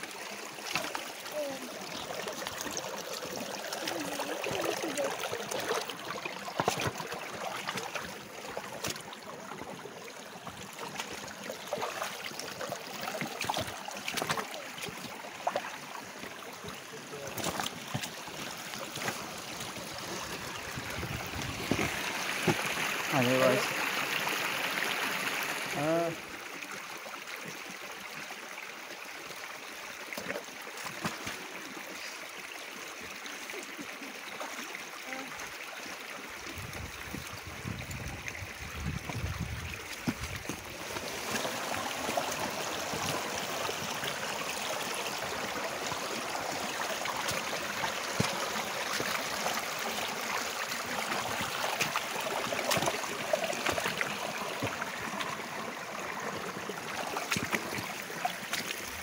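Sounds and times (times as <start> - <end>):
stream babbling over rocks: 0.0 - 59.0
boots splashing through water: 0.6 - 2.8, 3.7 - 22.9, 30.2 - 31.5, 38.8 - 59.0.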